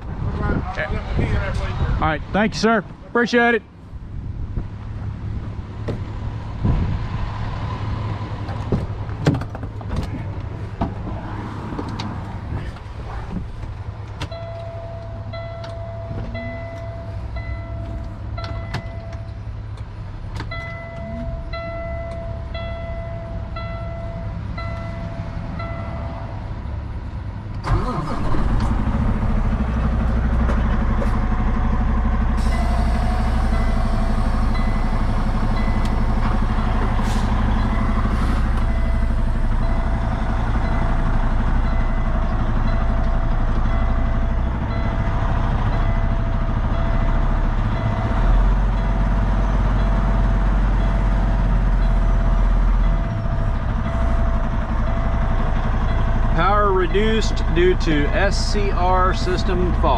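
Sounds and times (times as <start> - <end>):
diesel engine cranking and running: 3.3 - 59.9
dashboard warning chime beeping: 14.3 - 19.4, 20.5 - 26.0, 37.6 - 40.9.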